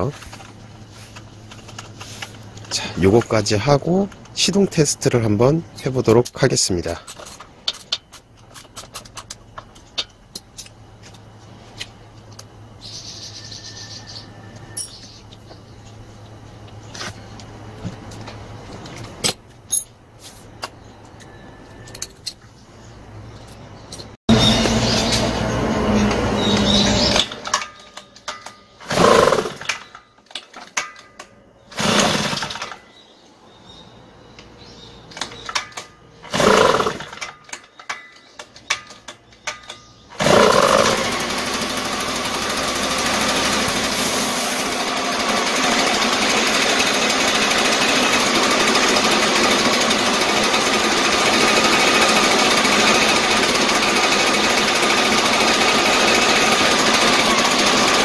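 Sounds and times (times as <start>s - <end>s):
blower engine starting and running: 0.0s - 7.9s, 24.3s - 30.8s, 31.6s - 32.9s, 35.1s - 37.7s, 38.7s - 58.0s.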